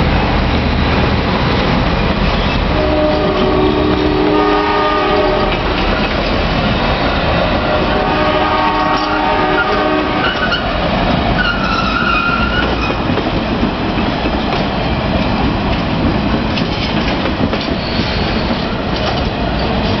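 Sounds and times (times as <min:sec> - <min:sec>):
train cars rumbling past: 0:00.0 - 0:20.0
locomotive horn: 0:02.7 - 0:05.7, 0:07.5 - 0:10.6
wheels clacking over rail joints: 0:05.0 - 0:20.0
high wheel squeal: 0:11.4 - 0:13.0, 0:17.7 - 0:18.6.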